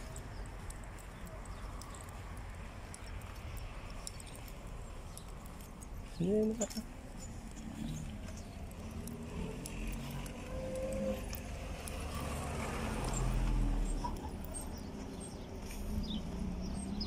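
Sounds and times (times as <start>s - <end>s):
road traffic rumble: 0.0s - 17.0s
vehicle passing by: 7.2s - 17.0s.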